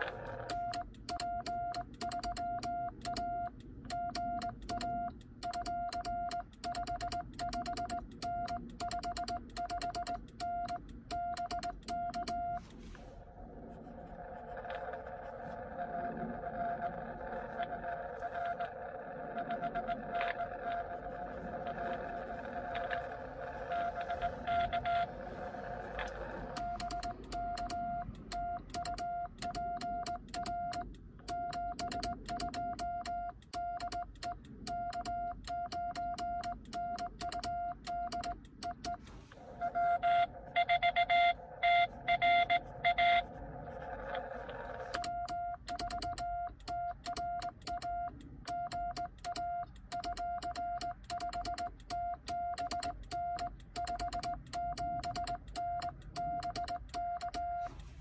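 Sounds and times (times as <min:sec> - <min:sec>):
morse code sidetone beeps: 0:00.0 - 0:12.7, 0:19.4 - 0:20.8, 0:23.7 - 0:25.1, 0:26.4 - 0:43.3, 0:44.9 - 0:57.7
morse key clicks: 0:00.4 - 0:12.6, 0:26.0 - 0:39.1, 0:44.9 - 0:57.5
harsh morse tone from receiver: 0:19.4 - 0:20.9, 0:22.7 - 0:25.1, 0:37.4 - 0:43.3.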